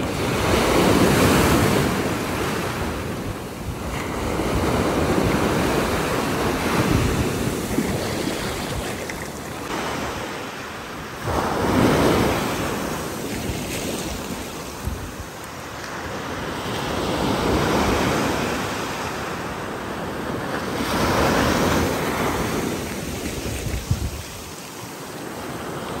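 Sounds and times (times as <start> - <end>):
wind buffeting microphone: 0.0 - 10.2, 20.8 - 24.9
ocean surf breaking on beach: 0.0 - 26.0.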